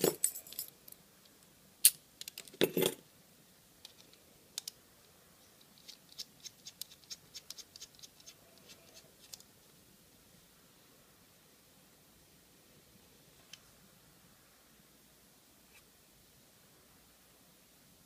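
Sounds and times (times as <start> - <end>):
metal parts clicking and clattering: 0.0 - 0.7.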